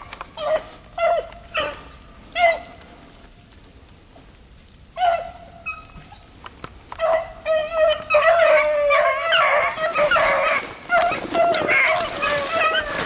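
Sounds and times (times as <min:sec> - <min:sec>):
hounds baying: 0:00.2 - 0:02.8, 0:05.0 - 0:06.3, 0:06.9 - 0:13.0.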